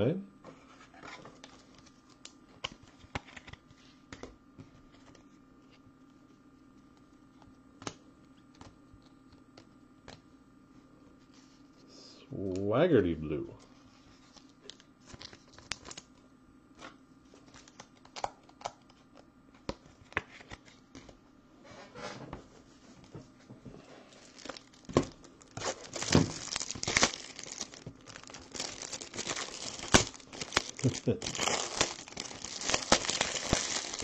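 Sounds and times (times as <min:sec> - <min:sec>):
plastic wrap crinkling and tearing: 0:14.6 - 0:16.1, 0:24.1 - 0:34.0.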